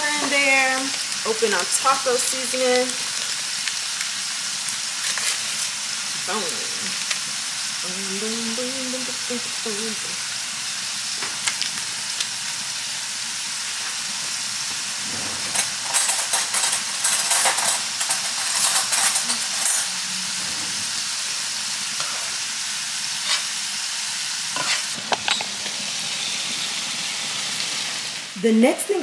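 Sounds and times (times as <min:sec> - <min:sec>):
meat sizzling in a frying pan: 0:00.0 - 0:29.0
utensil scraping a pan: 0:23.2 - 0:23.5, 0:24.5 - 0:25.5.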